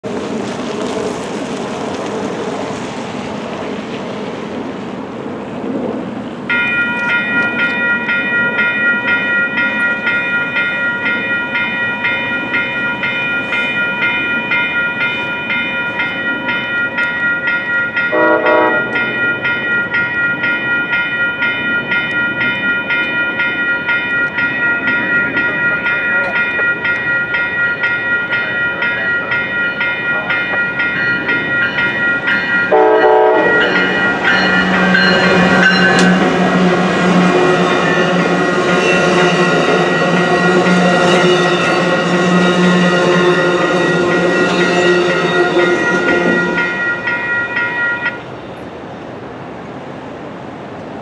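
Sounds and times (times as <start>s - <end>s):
road traffic: 0.0s - 51.0s
crossing bell ringing: 6.5s - 48.8s
train horn blast: 18.1s - 19.0s, 32.7s - 46.8s.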